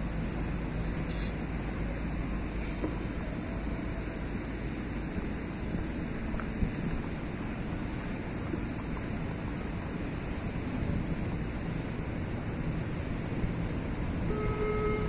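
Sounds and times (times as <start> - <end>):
water lapping: 0.0 - 15.0
wind on microphone: 4.9 - 15.0
short steady tone: 14.3 - 15.0.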